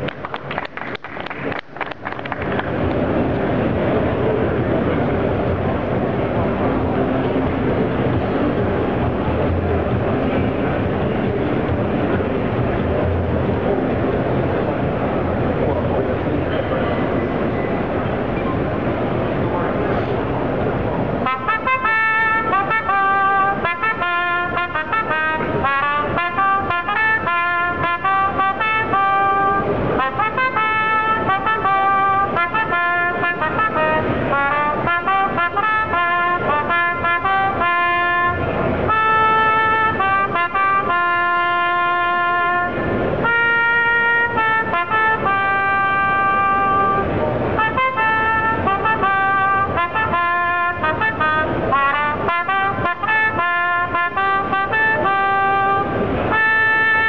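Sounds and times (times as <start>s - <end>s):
trumpet melody: 21.1s - 57.0s.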